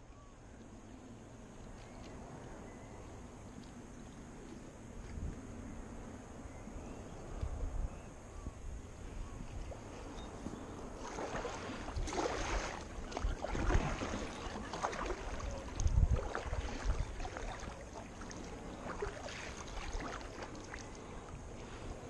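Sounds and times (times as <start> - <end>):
water sloshing around kayak: 9.5 - 22.0
paddle splashing into water: 11.0 - 21.0.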